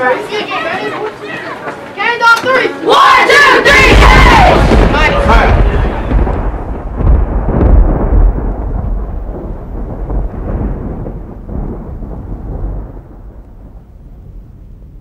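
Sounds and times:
rolling thunder rumble: 0:03.7 - 0:15.0.

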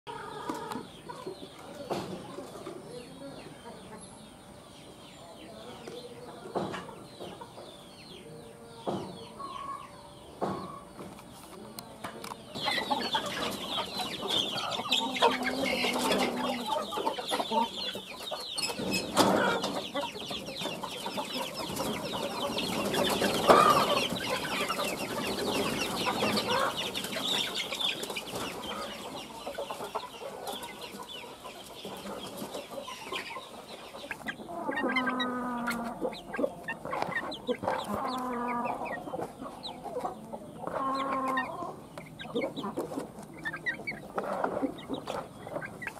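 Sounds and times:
long drawn-out chicken calls: 0:00.1 - 0:01.7, 0:12.5 - 0:45.9
chickens peeping and clucking: 0:00.1 - 0:45.9.

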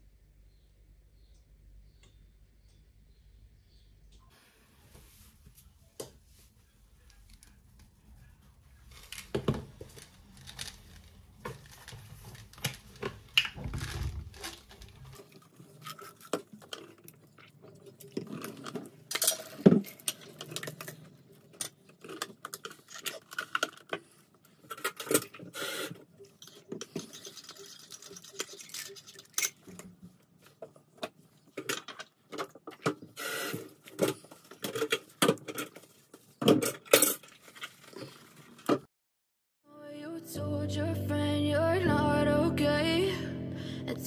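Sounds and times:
objects clicking and clattering: 0:09.0 - 0:33.2, 0:33.8 - 0:38.9.

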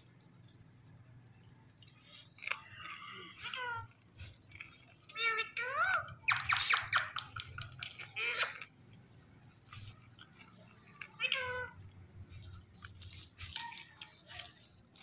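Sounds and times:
parakeet mimicking cat meow: 0:03.3 - 0:03.9, 0:08.0 - 0:08.7, 0:11.1 - 0:11.9.

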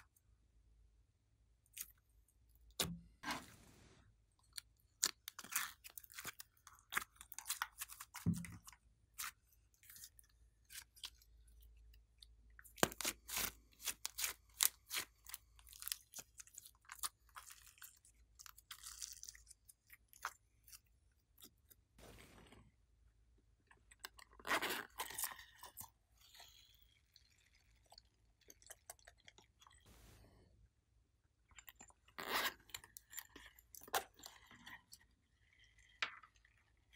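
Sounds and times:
slime squishing with wet clicks: 0:04.4 - 0:22.0, 0:23.6 - 0:29.9.

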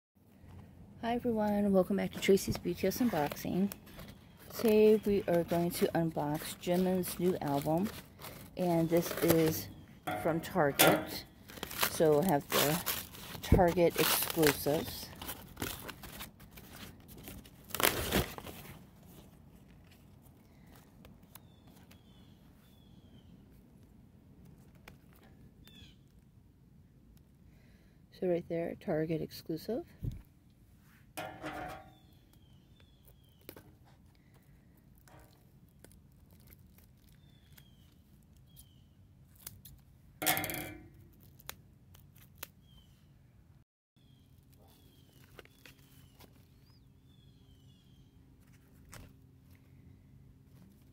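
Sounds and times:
paper mailer rustling and crinkling: 0:01.9 - 0:22.2.

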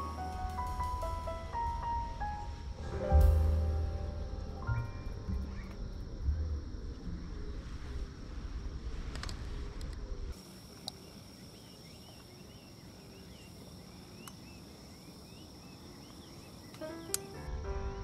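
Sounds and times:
high insect trill: 0:00.0 - 0:09.0
low wind rumble: 0:00.0 - 0:18.0
light clicks: 0:16.7 - 0:17.3.

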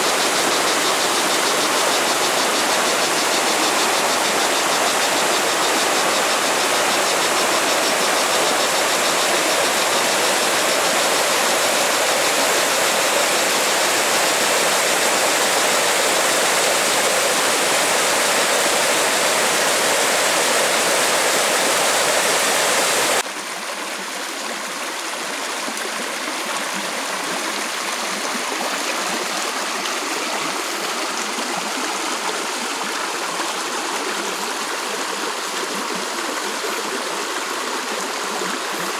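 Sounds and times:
waterfall rushing: 0:00.0 - 0:23.2
thin rush of running water: 0:00.0 - 0:38.9.

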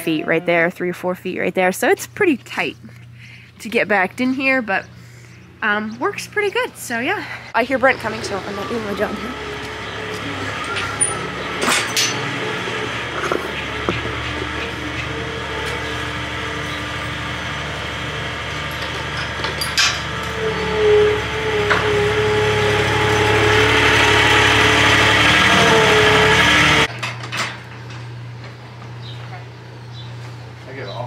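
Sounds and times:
skid steer engine running: 0:02.0 - 0:31.0
metal gate clanking: 0:07.9 - 0:28.2.

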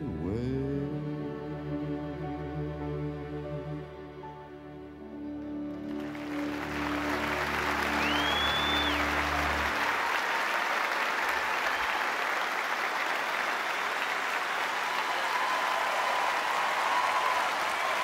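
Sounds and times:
audience applauding: 0:05.3 - 0:18.0.

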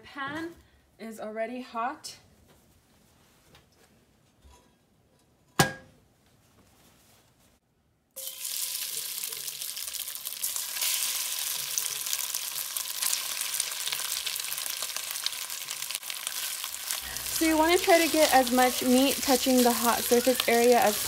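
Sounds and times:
meat sizzling in hot oil: 0:08.2 - 0:21.0.

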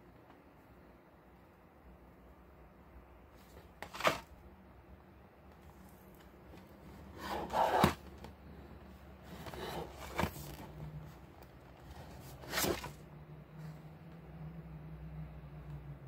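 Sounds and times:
cardboard box rubbing and clicking: 0:07.0 - 0:08.2, 0:09.3 - 0:10.8, 0:12.0 - 0:13.0.

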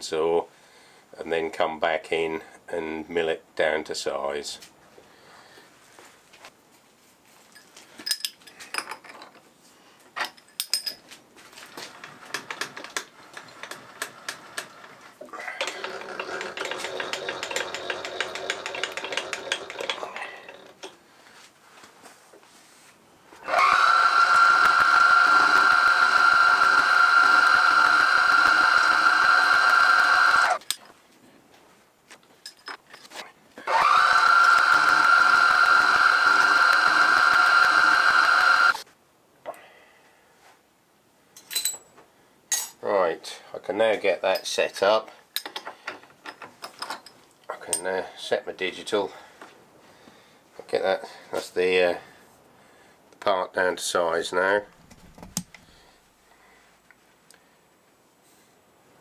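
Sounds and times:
milling machine spindle whine: 0:23.5 - 0:30.6, 0:33.7 - 0:38.8.

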